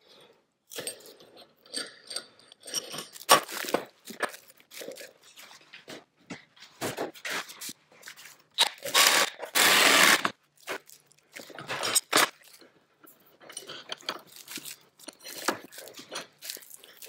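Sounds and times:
plastic wrap crinkling and tearing: 7.6s - 12.6s, 14.3s - 17.0s.

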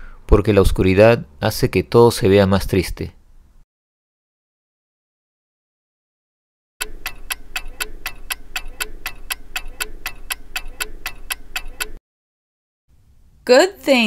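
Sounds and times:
clock ticking fast: 6.8s - 12.0s.

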